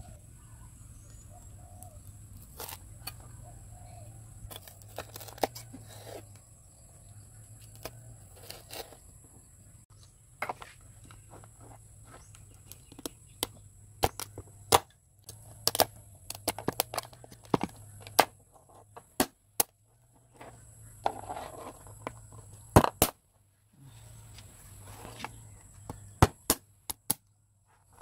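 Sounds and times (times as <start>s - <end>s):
crab shells cracking: 12.7s - 18.3s.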